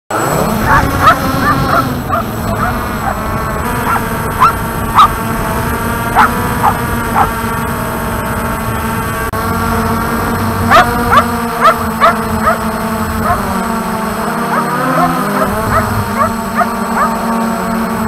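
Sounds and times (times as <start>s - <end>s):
drone rotors humming: 0.1s - 18.0s
dog barking: 0.6s - 3.2s, 3.8s - 5.2s, 6.2s - 7.4s, 10.7s - 13.6s, 14.4s - 17.4s.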